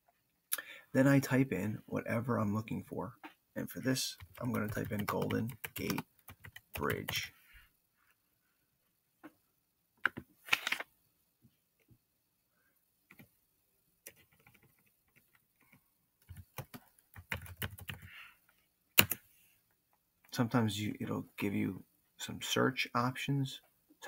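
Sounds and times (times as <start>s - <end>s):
keyboard keys clicking: 4.2s - 7.2s, 16.2s - 18.1s.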